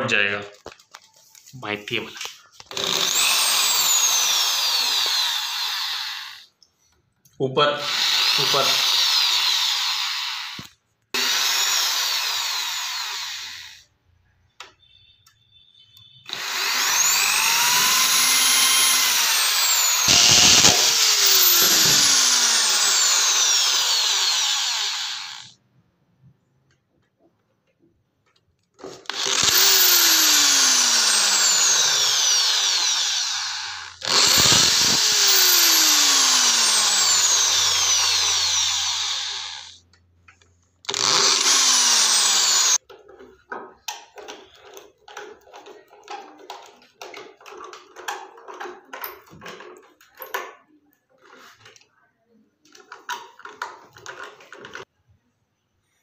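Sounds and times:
screwdriver scraping and creaking: 0.5 - 6.4, 16.3 - 25.5, 28.3 - 39.7, 40.3 - 51.9
electric drill whining: 2.6 - 6.5, 7.8 - 13.9, 16.2 - 25.6, 28.8 - 39.8, 40.9 - 42.8.

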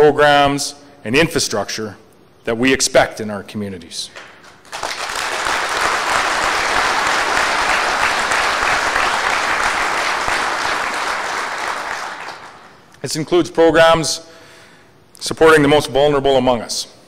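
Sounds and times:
audience applauding: 4.4 - 12.8.

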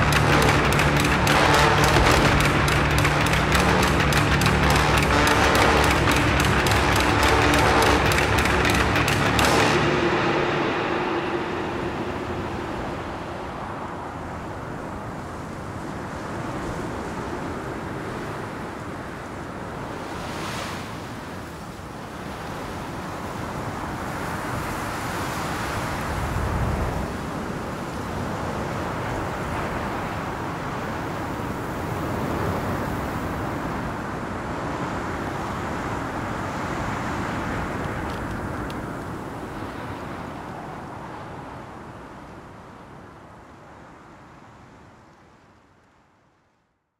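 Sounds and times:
low rumble: 0.0 - 15.1
rushing wind: 0.0 - 44.6.

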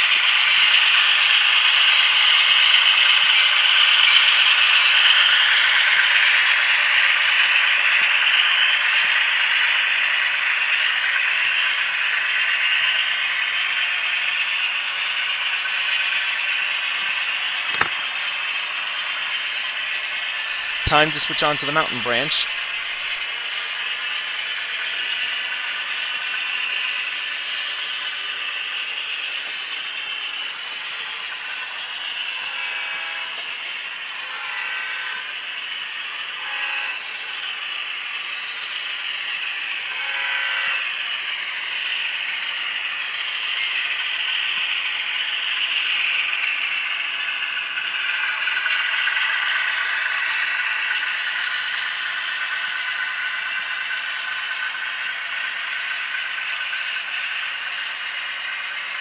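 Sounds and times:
model train wheels clattering on track: 0.0 - 20.8, 22.6 - 59.0
diesel engine sound: 12.6 - 34.0.

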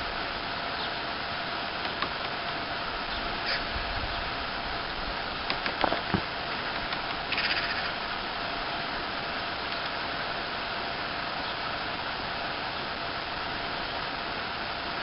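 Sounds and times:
steady background hiss: 0.0 - 15.0
woodpecker knocking on wood: 1.8 - 2.4, 5.4 - 7.9.

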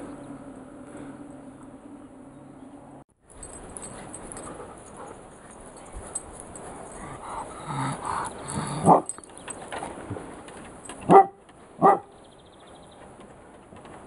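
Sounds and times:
dog vocalising low: 6.8 - 9.1
dog barking: 8.8 - 9.1, 11.1 - 12.1.

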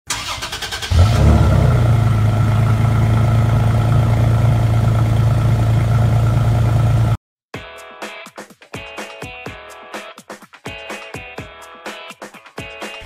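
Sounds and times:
engine starter cranking: 0.1 - 2.0
car engine idling: 0.1 - 7.2.

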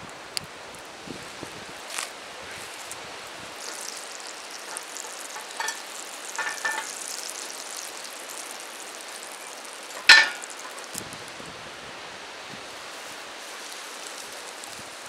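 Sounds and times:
butter sizzling in a skillet: 0.0 - 15.0
short crackles: 1.8 - 11.2.

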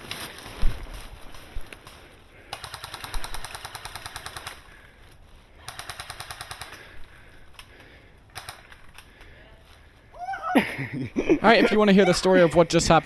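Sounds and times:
airsoft rifle bursts: 2.4 - 4.8, 5.6 - 7.0, 8.3 - 9.0.

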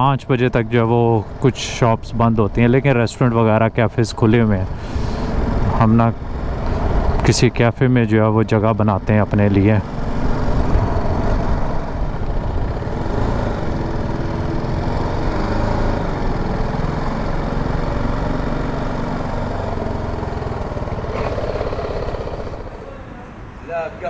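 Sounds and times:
road and wind noise: 0.0 - 24.0
street traffic: 0.0 - 24.0
motorcycle engine running: 9.0 - 23.0.

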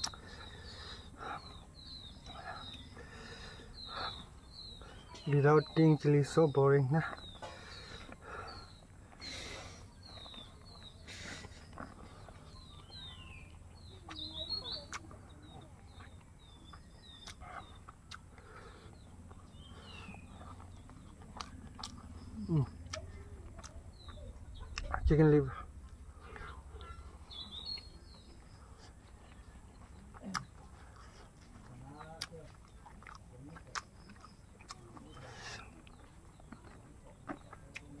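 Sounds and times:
small birds chirping: 0.0 - 38.0
person eating with hand: 7.1 - 25.0, 25.7 - 38.0.

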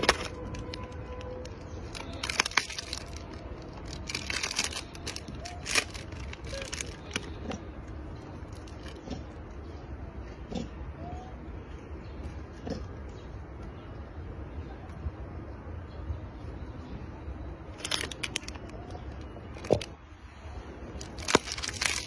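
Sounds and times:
plastic wrapper crinkling and tearing: 0.0 - 7.4, 8.4 - 9.0, 17.7 - 20.0, 21.0 - 22.0.

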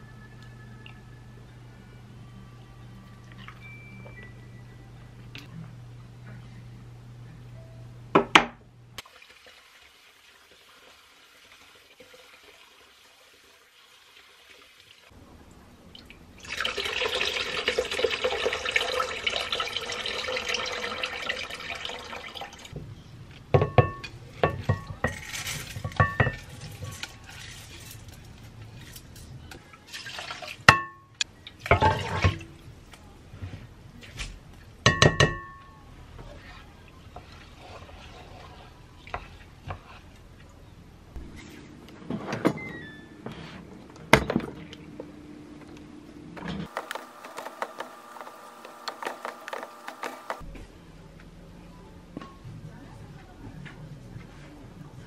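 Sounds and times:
tap water running into bowl: 16.0 - 22.7
bowl clinking against metal pot: 23.6 - 26.5.

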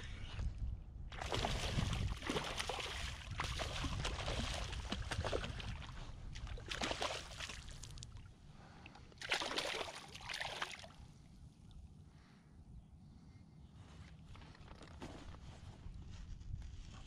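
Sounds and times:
fish thrashing and splashing: 1.2 - 8.2, 9.2 - 11.0
water splash: 1.2 - 8.2, 9.2 - 11.0.

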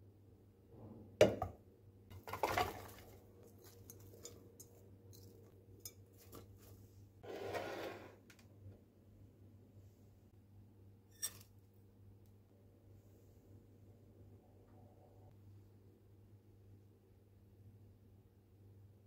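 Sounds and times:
apple slices clattering into pot: 2.1 - 4.4
soft scraping rustle: 6.2 - 8.2.

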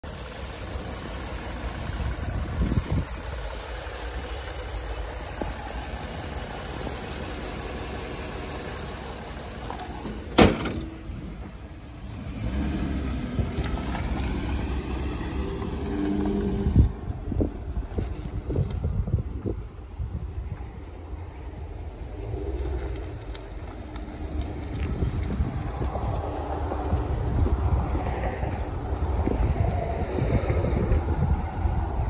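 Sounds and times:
pickup truck engine idling: 0.0 - 13.1.

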